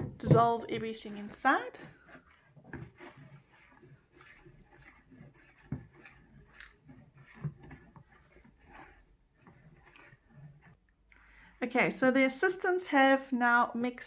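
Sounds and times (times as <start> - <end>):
spatula scraping plastic bowl: 0.0 - 12.6.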